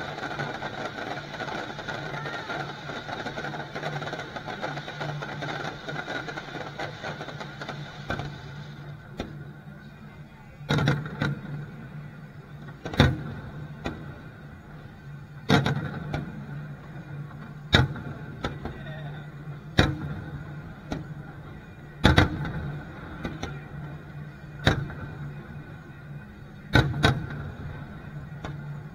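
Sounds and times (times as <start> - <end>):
firework shells booming: 0.0 - 9.4
small firework pops: 0.0 - 9.5, 10.7 - 11.6, 15.5 - 16.4, 17.3 - 21.3, 22.0 - 23.9, 24.6 - 25.3, 26.7 - 27.6, 28.4 - 28.7
fireworks crackling: 0.0 - 28.9.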